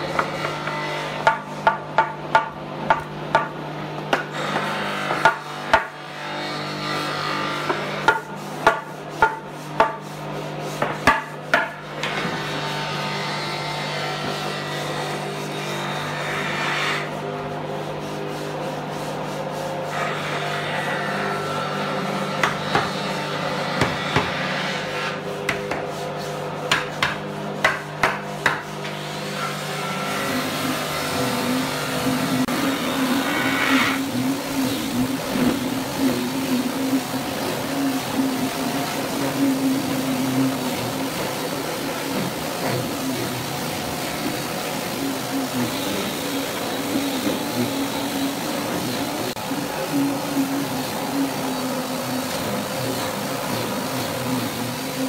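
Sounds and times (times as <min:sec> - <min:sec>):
steady hum: 0:29.8 - 0:55.0.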